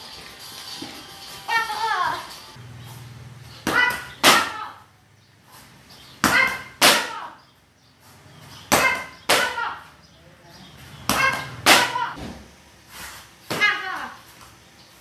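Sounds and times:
kicks slapping paddles: 3.6s - 4.6s, 6.2s - 7.2s, 11.0s - 12.5s.

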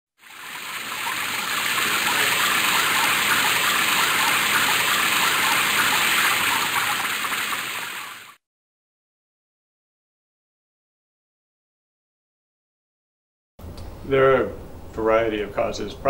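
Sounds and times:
water gushing from a tap: 0.2s - 8.4s.

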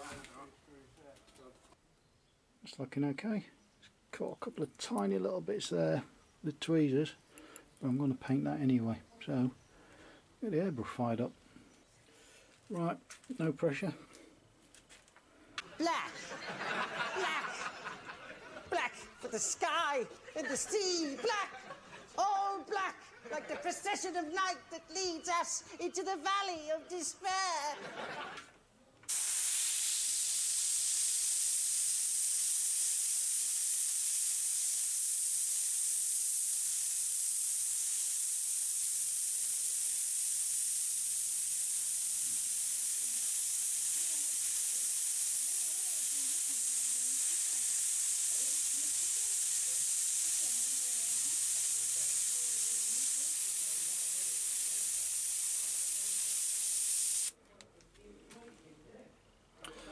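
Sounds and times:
airbrush hissing: 29.1s - 57.3s.

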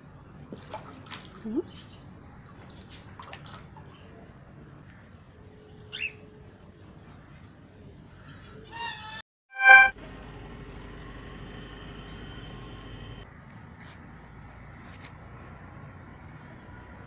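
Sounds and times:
caged birds chirping: 1.0s - 3.2s, 5.9s - 6.2s
short low rising call: 9.6s - 9.9s.

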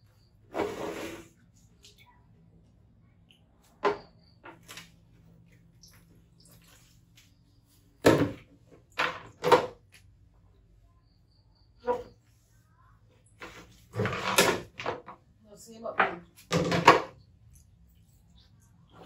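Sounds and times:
plastic stool on tile floor: 0.5s - 1.4s, 8.0s - 10.1s, 11.8s - 12.3s, 13.3s - 17.2s.

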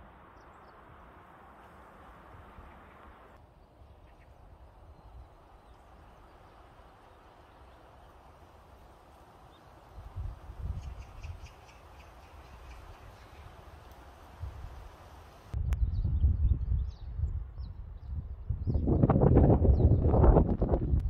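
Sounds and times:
steady hiss: 5.4s - 15.6s.

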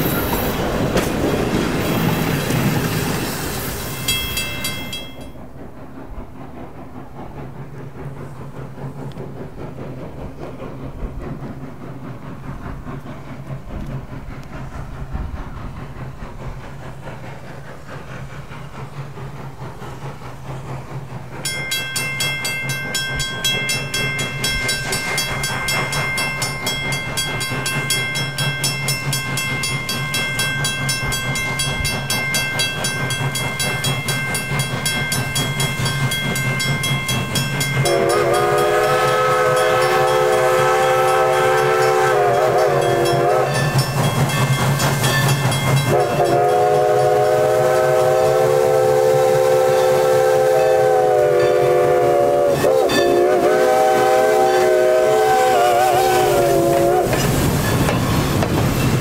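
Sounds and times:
steam locomotive rumble: 0.0s - 59.0s
steam whistle long note: 37.8s - 43.7s, 45.9s - 57.2s.

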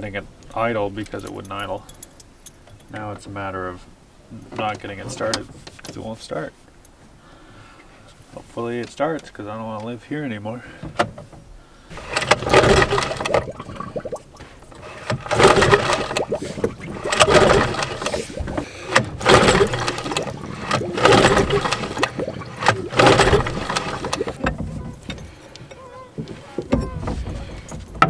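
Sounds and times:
outboard motor pull-start cranking: 11.9s - 28.0s.

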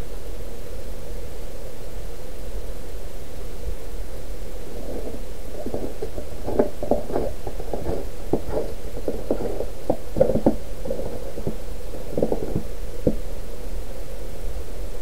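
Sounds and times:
low rumble on microphone: 3.7s - 14.7s
footsteps crunching in snow: 4.5s - 13.2s.

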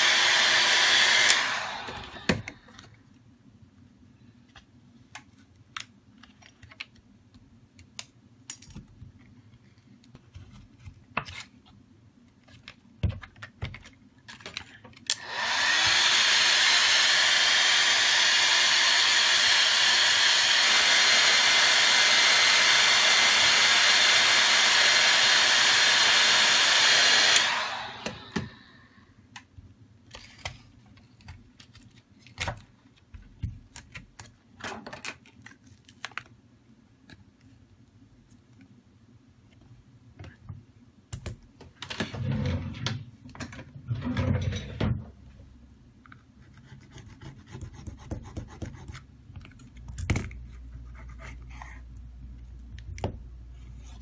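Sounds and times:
heat gun blowing air: 0.0s - 2.6s, 15.1s - 28.9s.

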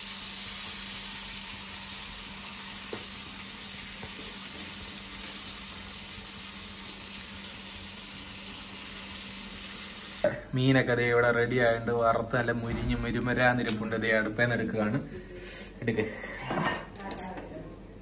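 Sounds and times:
fish sizzling in hot oil: 0.0s - 10.3s.

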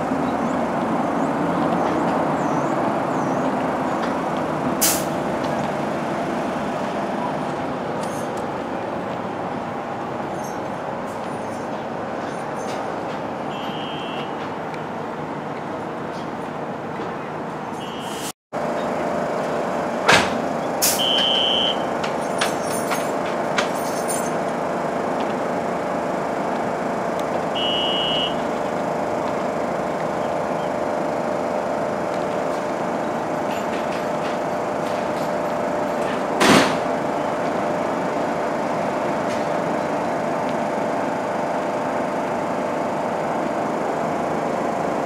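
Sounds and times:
subway train equipment humming: 0.0s - 45.0s
short high beeps: 27.6s - 28.4s.

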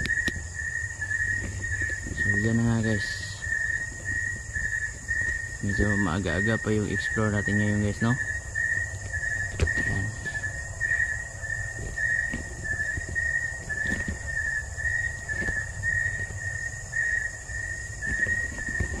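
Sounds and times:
cricket chirping: 0.0s - 19.0s
high insect hum: 0.0s - 19.0s
soft footsteps: 0.0s - 19.0s
handling thumps: 9.0s - 19.0s.

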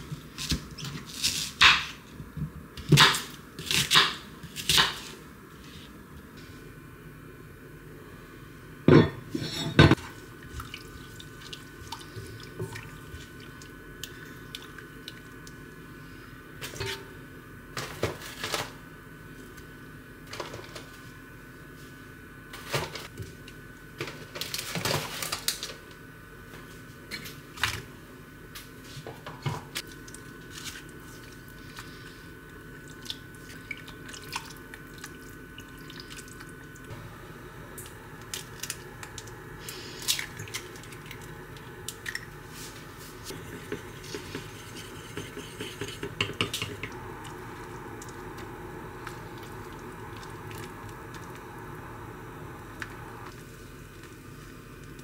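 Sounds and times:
faint steady hum: 0.0s - 55.0s
tongs knocking and scraping in pot: 43.3s - 47.0s.

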